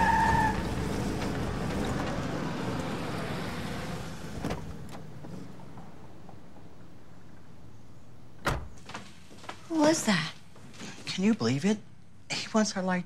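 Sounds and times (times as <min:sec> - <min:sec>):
truck engine driving off: 0:00.0 - 0:04.8.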